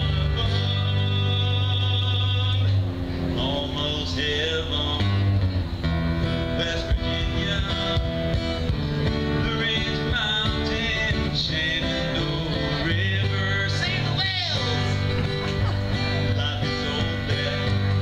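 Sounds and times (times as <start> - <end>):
guitars playing: 0.0 - 18.0
live country music: 0.0 - 18.0
people singing: 9.4 - 18.0.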